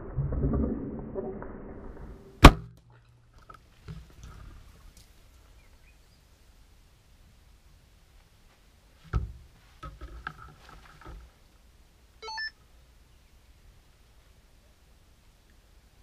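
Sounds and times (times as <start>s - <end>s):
short electronic beep: 12.2s - 12.6s.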